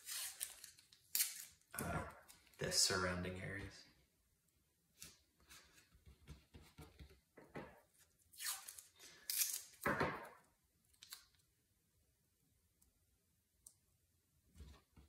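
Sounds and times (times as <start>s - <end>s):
masking tape tearing: 0.0s - 1.6s, 8.3s - 9.9s
tape rustling on paper: 0.0s - 2.6s, 7.9s - 9.8s.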